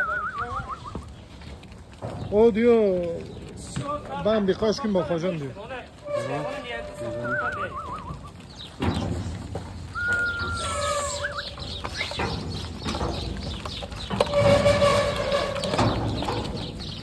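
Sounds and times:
sheep shuffling: 0.0 - 17.0
long smooth whistle: 10.0 - 11.4
sheep calling: 10.0 - 12.2.

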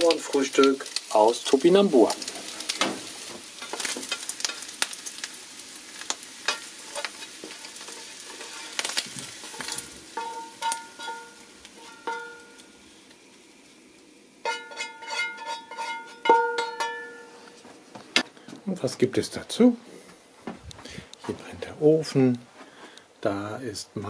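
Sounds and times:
food sizzling: 0.0 - 19.8
spatula scraping frying pan: 6.4 - 12.6, 14.4 - 17.5.

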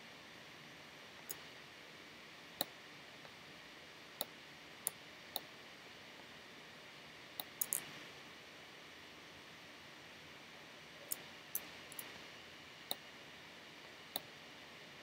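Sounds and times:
faint steady hiss: 0.0 - 15.0
computer mouse clicking: 7.4 - 7.9.

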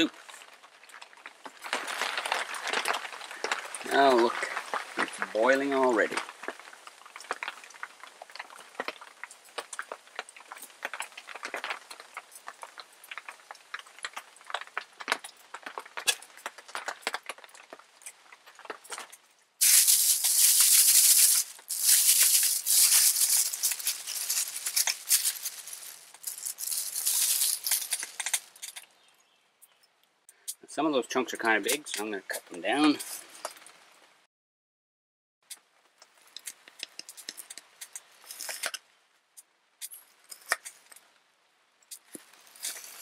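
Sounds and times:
wood stove crackling: 0.0 - 29.1, 35.8 - 38.8, 39.4 - 43.0
plastic bag crinkling: 0.2 - 7.7, 19.6 - 28.9, 36.4 - 38.8, 42.0 - 43.0.

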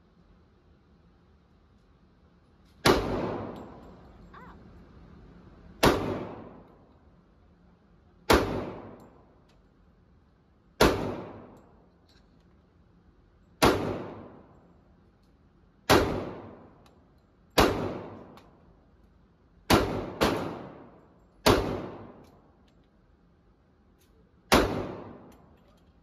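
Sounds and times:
pistol shots ringing indoors: 2.8 - 4.0, 5.8 - 6.8, 10.8 - 11.8, 13.6 - 14.6, 19.7 - 22.4, 24.5 - 25.5.

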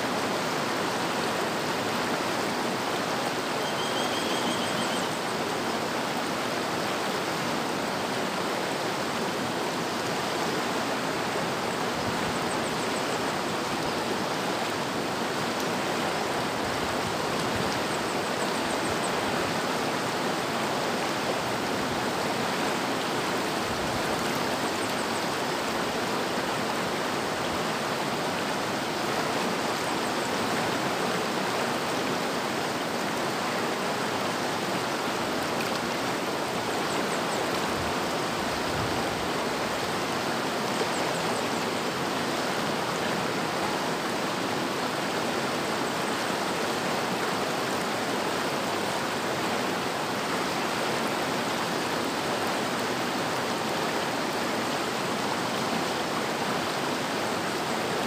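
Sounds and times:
river water rushing: 0.0 - 58.0.

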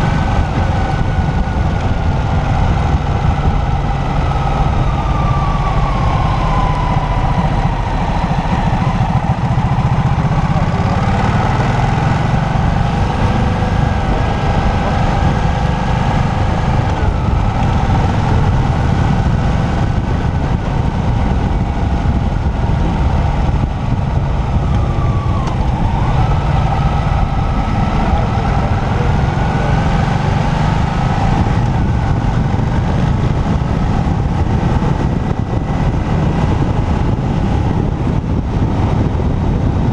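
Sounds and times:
motorcycle engine running: 0.0 - 39.9
wind rumble on microphone: 0.0 - 39.9.

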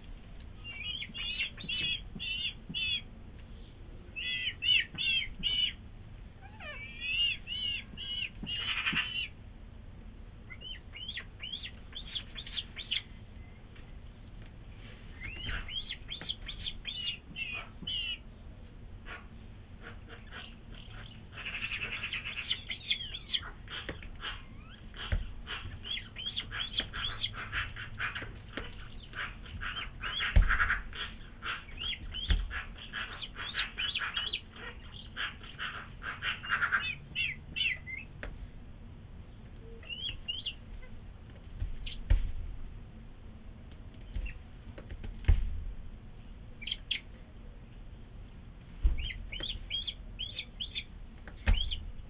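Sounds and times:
bird chick peeping: 0.6 - 5.8, 6.4 - 9.4, 10.4 - 13.9, 15.0 - 18.4, 19.0 - 38.3, 39.4 - 42.2, 43.9 - 45.3, 46.5 - 47.2, 48.8 - 52.0
dull thumps: 29.5 - 30.9, 32.0 - 32.6, 41.2 - 42.6, 43.8 - 45.8, 48.6 - 49.7, 51.1 - 52.0.

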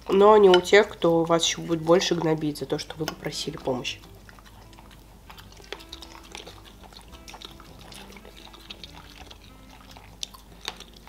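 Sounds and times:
chewing soft food: 0.0 - 11.0
wet mouth clicks: 4.0 - 11.0.

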